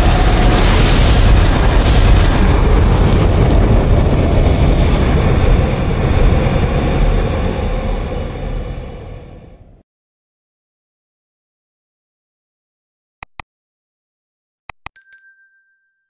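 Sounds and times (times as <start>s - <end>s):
deep explosion-like rumble: 0.0s - 9.8s.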